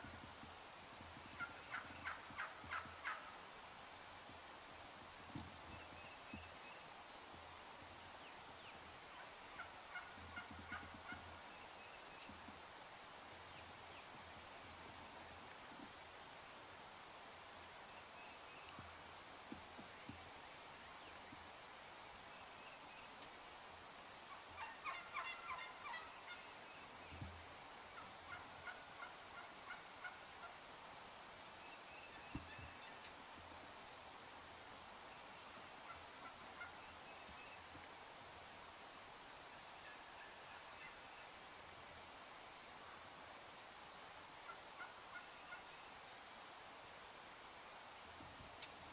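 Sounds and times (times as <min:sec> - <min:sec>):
faint turkey gobbling: 0:01.0 - 0:03.5, 0:08.2 - 0:12.6, 0:24.2 - 0:30.7, 0:31.6 - 0:33.6, 0:35.3 - 0:37.9, 0:39.4 - 0:41.4, 0:44.4 - 0:46.1
turkey short calls: 0:24.3 - 0:26.5.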